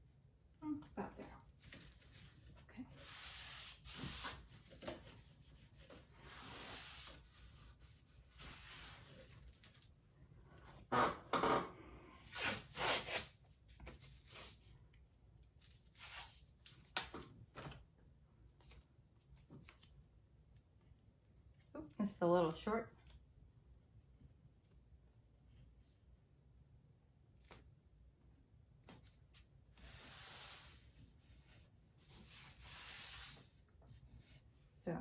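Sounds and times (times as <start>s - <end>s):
tape rubbing and rasping: 1.6s - 9.9s, 12.2s - 14.7s, 15.6s - 16.8s, 29.7s - 34.4s.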